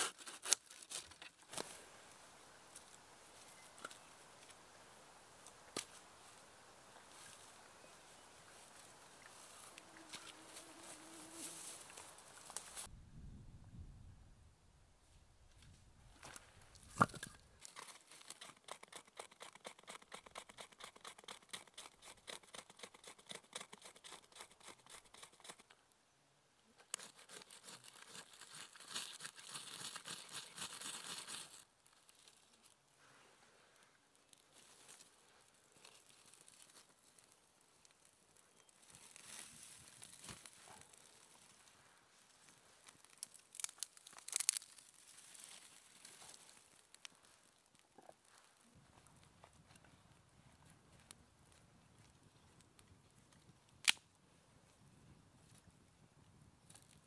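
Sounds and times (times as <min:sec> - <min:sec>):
dry tinder crinkling: 0:34.2 - 0:48.6.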